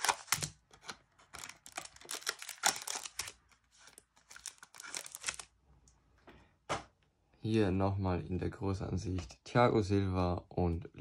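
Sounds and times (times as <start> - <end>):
foil and plastic packaging crinkling: 0.0 - 5.5.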